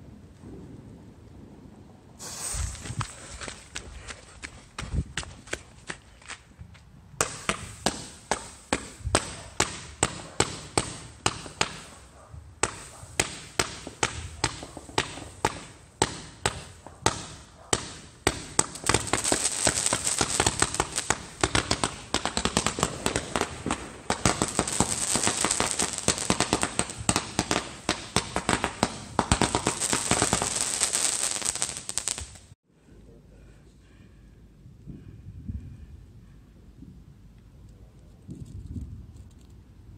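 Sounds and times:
firework launch shots: 2.2 - 3.0, 7.2 - 12.0, 12.6 - 32.5
firework crackling: 2.2 - 3.2, 7.2 - 32.6.

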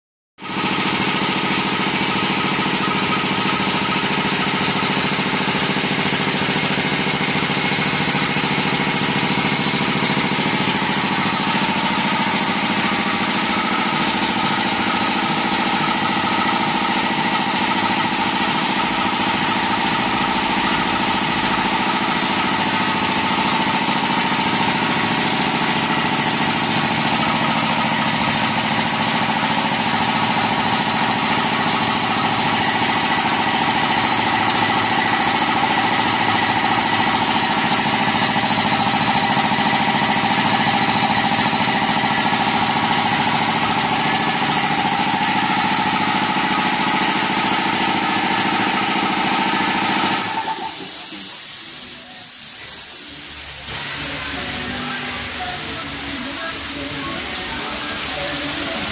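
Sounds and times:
air compressor running: 0.4 - 58.9
compressor whine: 0.4 - 58.9.

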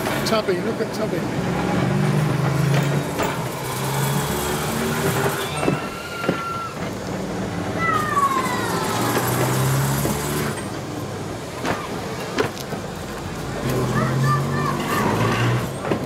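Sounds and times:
tram motors humming: 0.0 - 16.0
wheels knocking over rail joints: 0.0 - 16.0
wheel squeal: 1.6 - 10.8, 13.8 - 16.0.

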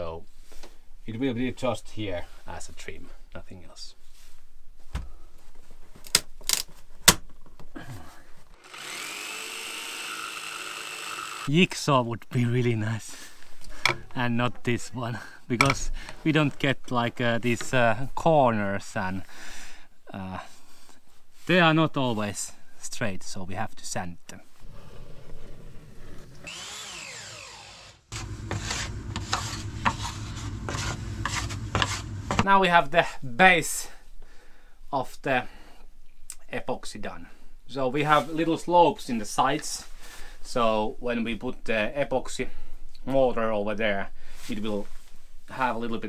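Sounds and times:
electric power tool whining: 8.5 - 11.5, 26.2 - 29.2
rasping rubbing strokes: 8.6 - 11.5, 24.6 - 32.4.

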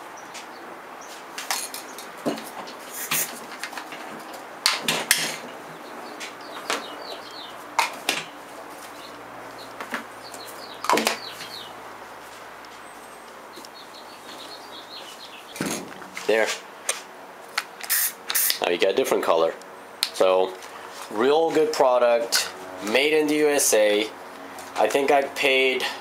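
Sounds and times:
spray cans clicking and knocking: 17.6 - 18.6.

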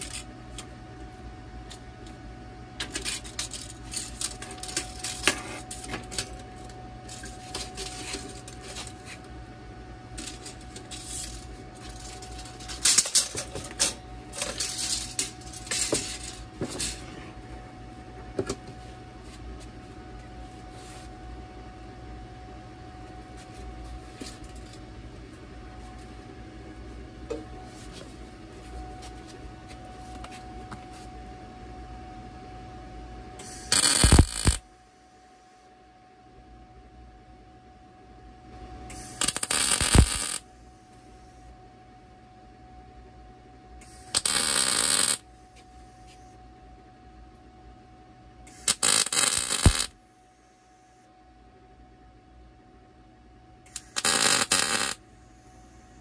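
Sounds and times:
steady shop hum: 0.0 - 56.0
welding arc crackling: 10.2 - 17.0, 33.4 - 34.6, 38.9 - 40.4, 43.9 - 45.2, 48.5 - 49.9, 53.7 - 55.0.

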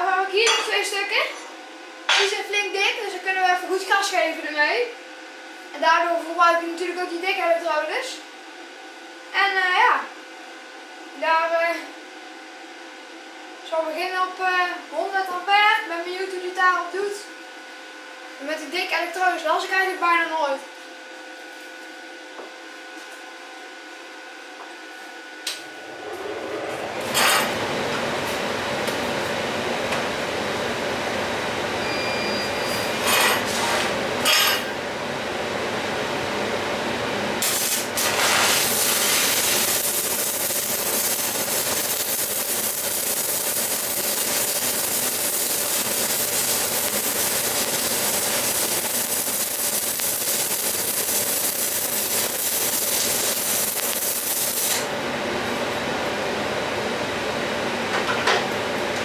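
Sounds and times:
welding arc flares: 32.5 - 34.7, 37.4 - 54.9
arc welding crackling hiss: 37.4 - 54.9.

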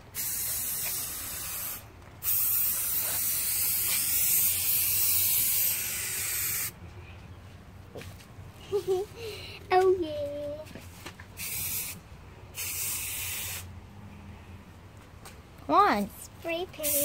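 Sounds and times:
spray paint can hissing: 0.1 - 6.8, 11.4 - 13.7, 16.8 - 17.0.

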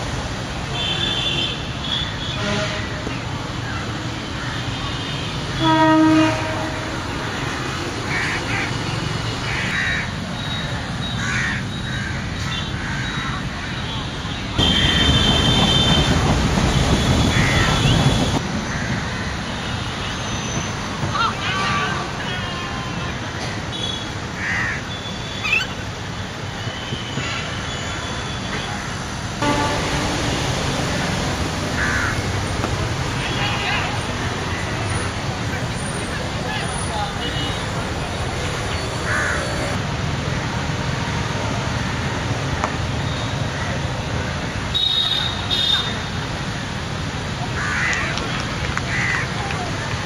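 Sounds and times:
traffic hum: 0.0 - 50.0
vehicle horn blast: 5.6 - 7.0, 29.4 - 30.4
crow cawing: 9.4 - 10.1, 11.2 - 13.3, 17.3 - 17.8, 24.4 - 24.8, 31.8 - 32.3, 39.0 - 39.6, 47.6 - 48.0, 48.9 - 49.3.

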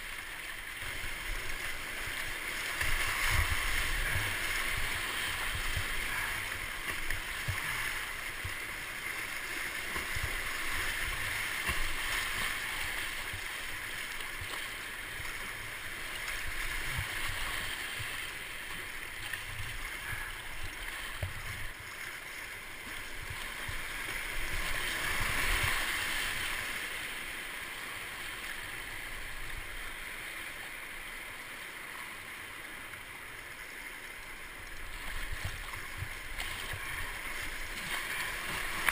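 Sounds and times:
whitewater rushing: 0.0 - 33.5, 34.1 - 38.9
water thumping on boat: 9.8 - 13.4.

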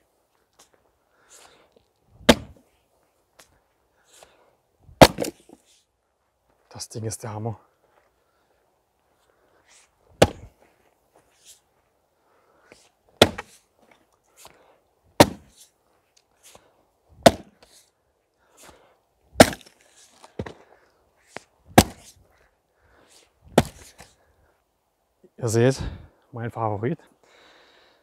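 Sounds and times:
maul splitting firewood: 0.6 - 2.7, 4.1 - 5.8, 10.1 - 10.6, 12.7 - 15.8, 16.5 - 22.2, 22.8 - 24.2.

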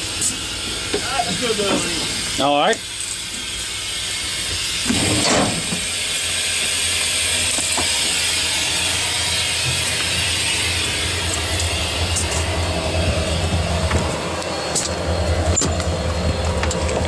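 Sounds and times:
diesel engine drone: 0.0 - 17.0.

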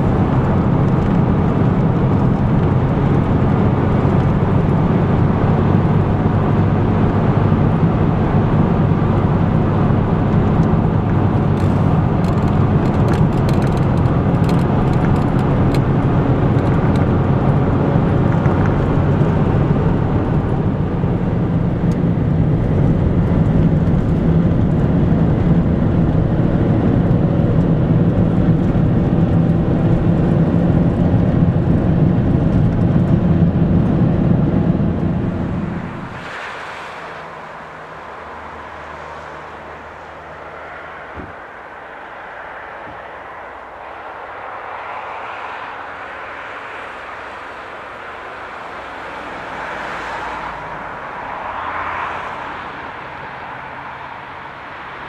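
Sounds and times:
car engine and road noise: 0.0 - 55.0.

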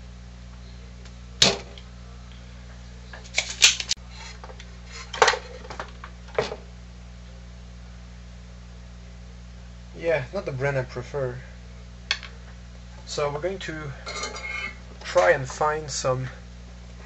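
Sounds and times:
low steady hum: 0.0 - 17.0
desoldering pump snapping: 3.2 - 4.7.

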